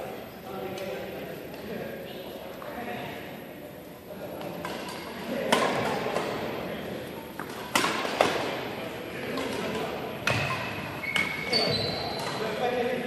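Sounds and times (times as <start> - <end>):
rackets hitting shuttlecock: 4.4 - 6.6, 7.3 - 12.6.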